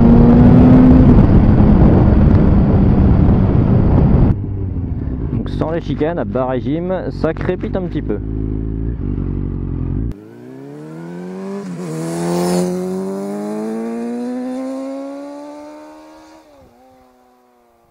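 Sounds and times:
motorcycle engine accelerating past: 8.1 - 17.9.

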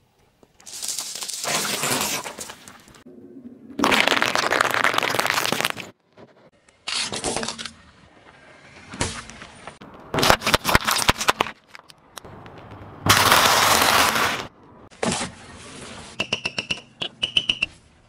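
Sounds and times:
brittle object cracking under tyre: 10.1 - 14.3.

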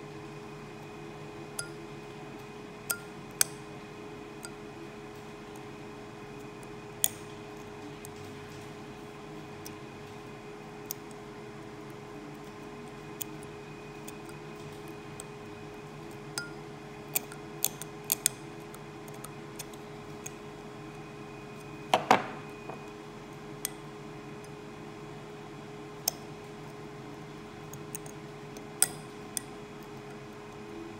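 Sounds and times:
steady background hum: 0.0 - 30.9
metal probe clicking and scratching: 17.1 - 20.4.

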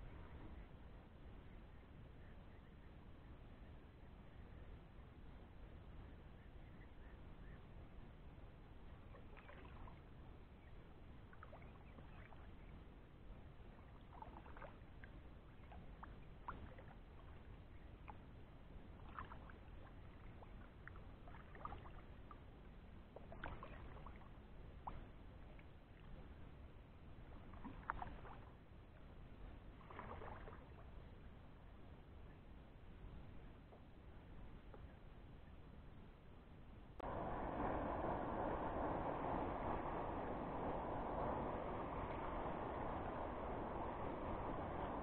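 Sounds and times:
low steady rumble: 0.0 - 45.0
paddle splashing in water: 13.7 - 18.2, 18.9 - 22.2, 23.1 - 26.0, 27.4 - 28.6, 29.8 - 30.8.

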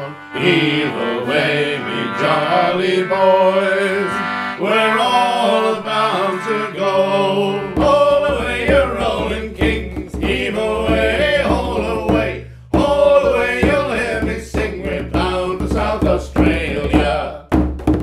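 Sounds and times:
concertina chord: 0.0 - 7.8
men singing in harmony: 0.0 - 17.5
frame drums beaten: 7.7 - 18.0.

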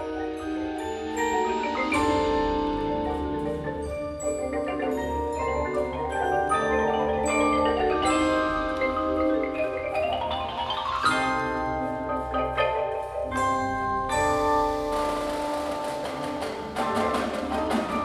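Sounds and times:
marimba ensemble playing: 0.0 - 18.0.

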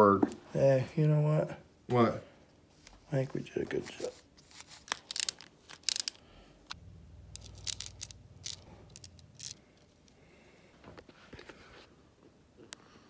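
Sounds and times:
small metal parts clicking: 4.9 - 10.2
low hum: 6.5 - 10.7.

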